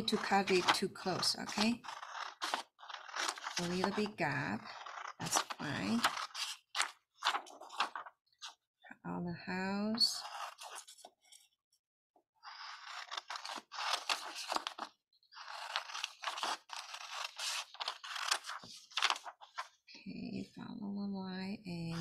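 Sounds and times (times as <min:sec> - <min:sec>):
scissors snipping paper: 0:00.0 - 0:08.0, 0:12.6 - 0:19.6.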